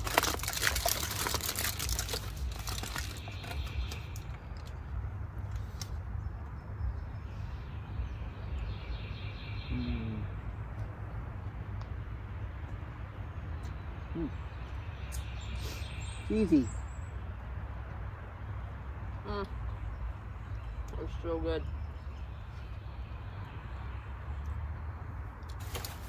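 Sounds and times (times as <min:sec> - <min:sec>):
crinkling and rustling clicks: 0:00.0 - 0:04.8
low outdoor rumble: 0:00.0 - 0:08.8.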